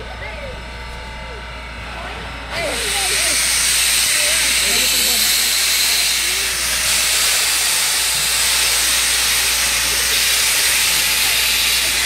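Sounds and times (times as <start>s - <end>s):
steam hissing: 2.6s - 12.0s.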